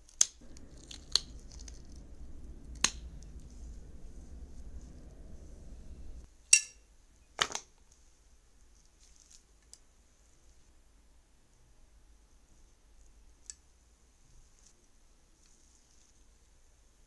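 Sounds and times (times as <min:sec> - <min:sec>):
low hum: 0:00.4 - 0:06.3.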